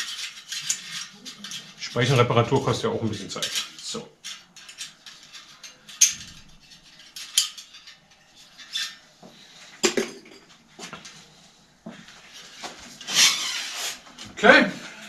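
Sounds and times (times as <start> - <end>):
metallic clinking and rattling: 0.0 - 9.1.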